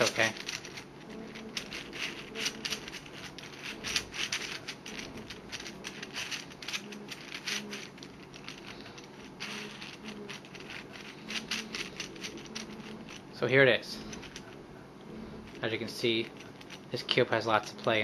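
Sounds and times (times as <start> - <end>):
plastic puzzle pieces clicking: 0.0 - 13.2.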